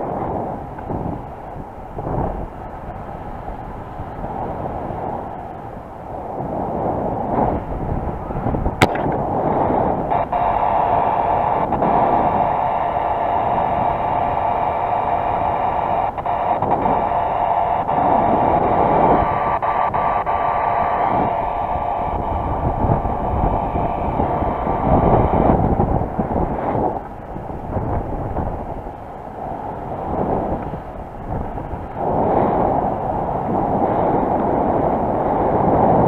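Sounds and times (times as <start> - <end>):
wind buffeting microphone: 0.0 - 36.0
steady whistling tone: 9.3 - 26.9.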